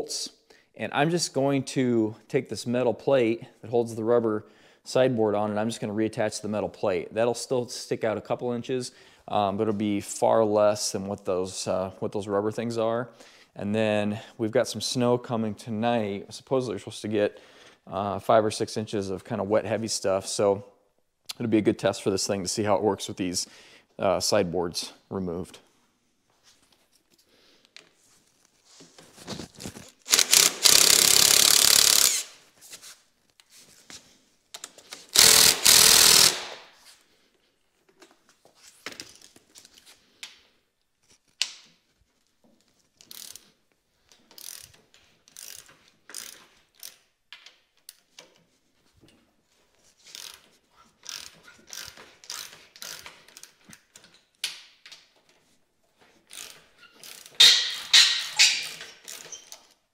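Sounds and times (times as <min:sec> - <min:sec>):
ratchet wrench clicking: 0:30.1 - 0:32.3, 0:35.1 - 0:36.6, 0:43.0 - 0:43.4, 0:44.3 - 0:44.7, 0:45.3 - 0:48.0, 0:50.1 - 0:50.4, 0:51.0 - 0:53.5, 0:56.3 - 0:59.6.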